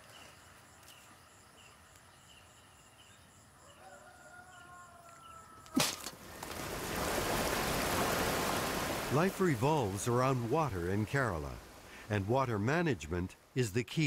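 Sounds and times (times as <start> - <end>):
coconut cracking against stone: 5.7 - 6.2
water rushing through sluice: 6.0 - 12.2.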